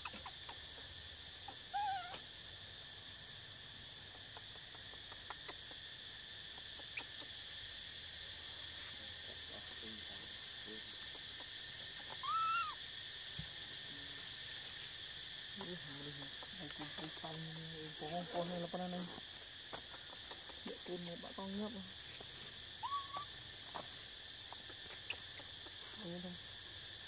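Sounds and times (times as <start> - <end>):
insect chorus drone: 0.0 - 27.0
short wavering tonal calls: 12.1 - 12.8, 22.8 - 23.3.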